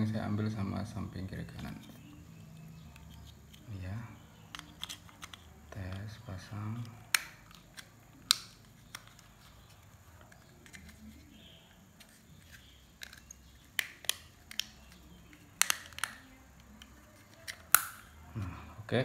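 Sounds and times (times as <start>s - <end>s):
plastic switch clicking: 7.1s - 9.2s, 15.6s - 16.2s.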